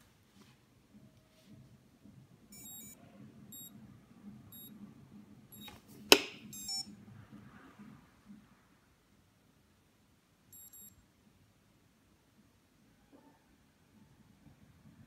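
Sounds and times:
short high electronic beeps: 2.6 - 3.0, 6.6 - 6.8, 10.6 - 10.9.

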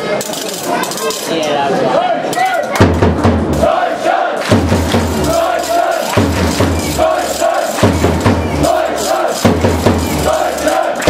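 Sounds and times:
rhythmic chanting: 1.9 - 11.0
deep drum hits: 4.5 - 5.5.

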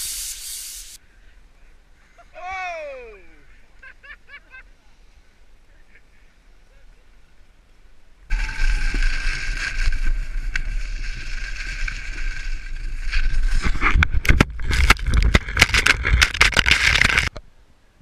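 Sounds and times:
low rumble: 8.3 - 16.3
ski scrapes and knocks: 8.3 - 17.4
wind rushing over microphone: 8.3 - 17.4.

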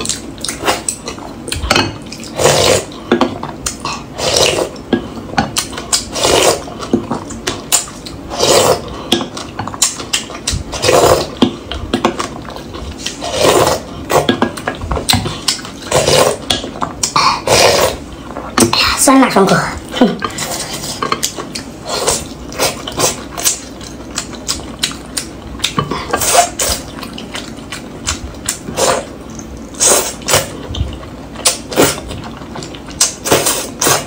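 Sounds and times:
person slurping broth: 2.2 - 2.9, 3.9 - 4.8, 6.0 - 6.7, 8.3 - 9.0, 10.7 - 11.4, 13.0 - 14.3, 15.9 - 16.4, 17.1 - 18.0, 21.8 - 23.5, 28.7 - 29.1, 29.8 - 30.6, 33.2 - 34.0.

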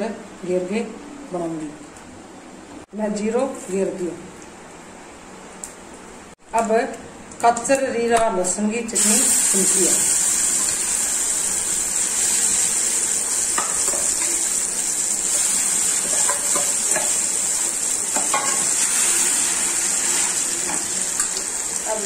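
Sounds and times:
paste sizzling in hot oil: 9.0 - 22.0.

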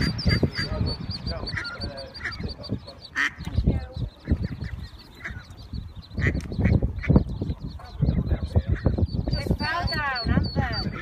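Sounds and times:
duck quacking: 0.0 - 3.5, 4.2 - 5.6, 6.2 - 7.2
ducklings peeping: 0.0 - 11.0.

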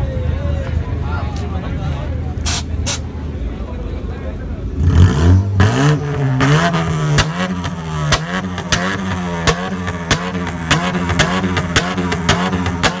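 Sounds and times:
car engine revving: 4.6 - 13.0.

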